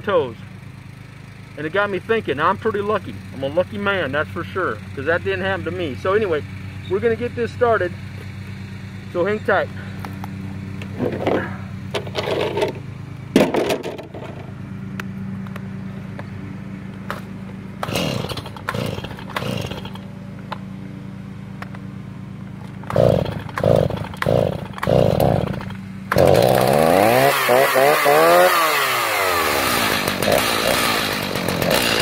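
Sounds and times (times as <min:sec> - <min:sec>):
steady low hum: 0:00.0 - 0:31.7
chainsaw engine firing briefly: 0:17.8 - 0:20.0, 0:22.9 - 0:32.0
starter cord pulls: 0:17.8 - 0:20.1, 0:22.6 - 0:28.4.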